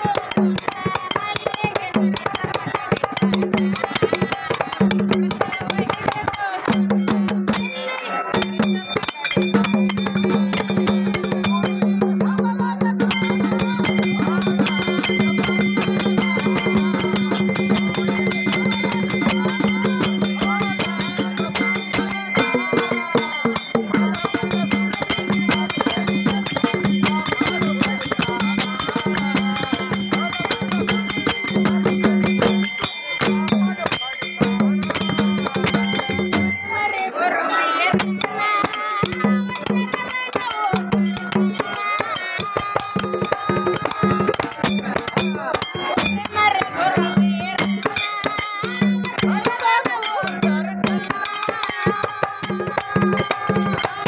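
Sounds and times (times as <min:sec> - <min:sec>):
person singing: 0:00.0 - 0:06.8, 0:07.6 - 0:54.0
hand cymbals clashing: 0:00.0 - 0:12.4, 0:13.0 - 0:36.8, 0:37.9 - 0:54.0
large drum with bells: 0:00.0 - 0:54.0
hand drum rapid strokes: 0:37.9 - 0:54.0.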